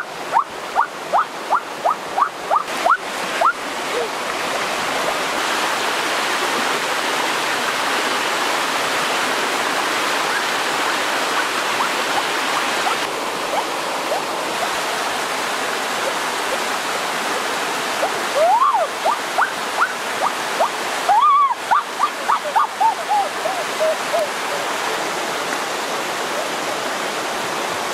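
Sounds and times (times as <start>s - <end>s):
stream rapids rushing: 0.0s - 27.9s.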